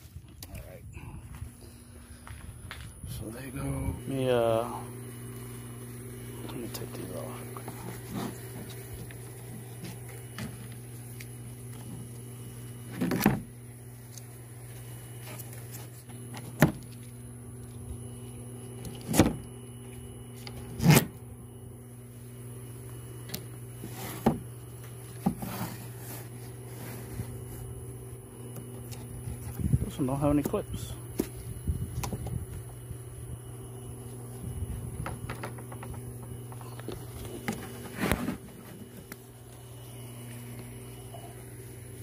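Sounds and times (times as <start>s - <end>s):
steady low hum: 0.0s - 42.0s
knocks and clunks of radiator fans: 34.3s - 39.3s.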